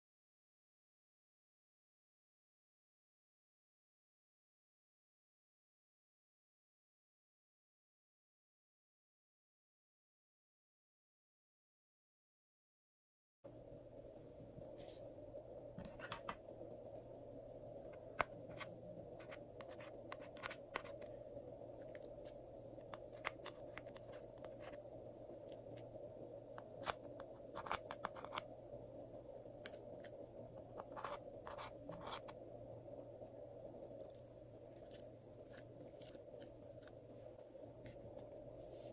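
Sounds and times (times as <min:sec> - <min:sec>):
faint hiss: 0:13.5 - 0:38.9
sharp clicks and scratches: 0:26.8 - 0:28.5.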